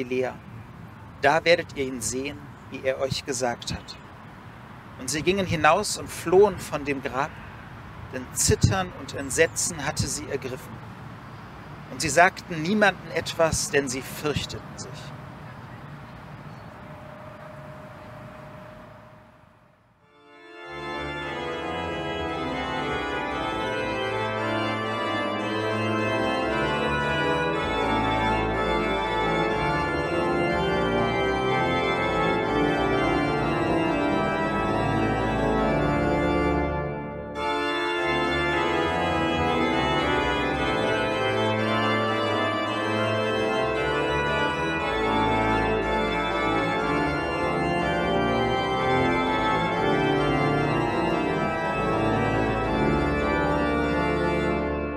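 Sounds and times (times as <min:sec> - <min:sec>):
deep organ pedal notes: 0:00.0 - 0:04.1, 0:05.0 - 0:07.3, 0:08.1 - 0:10.8, 0:20.0 - 0:54.9
pipe organ chords: 0:00.0 - 0:04.2, 0:05.0 - 0:07.4, 0:08.1 - 0:10.9, 0:11.8 - 0:19.4, 0:20.0 - 0:54.9.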